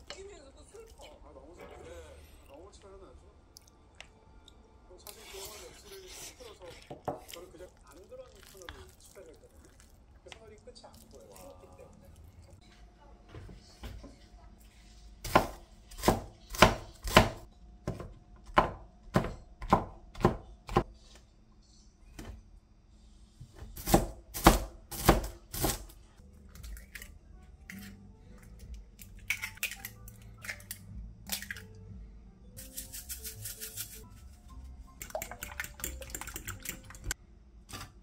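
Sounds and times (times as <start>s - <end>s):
knife chopping on cutting board: 15.2s - 20.9s, 23.6s - 25.9s.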